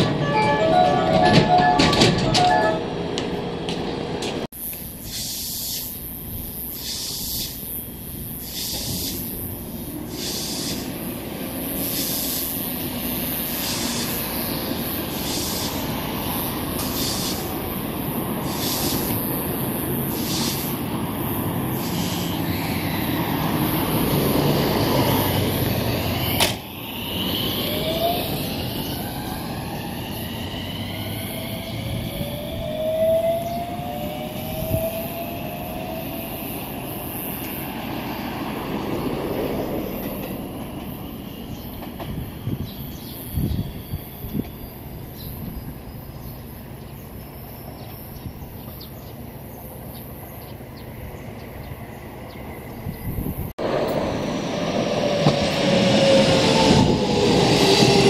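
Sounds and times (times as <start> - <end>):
train wheels rumbling on rails: 0.0 - 4.5, 9.8 - 42.7, 50.9 - 58.0
traction motor whine rising: 10.8 - 44.5, 53.6 - 58.0.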